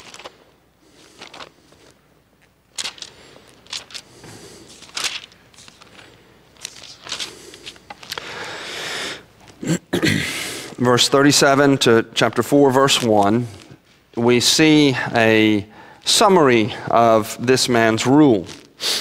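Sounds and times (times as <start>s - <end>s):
thin pages rustling: 0.0s - 8.3s, 12.3s - 14.0s.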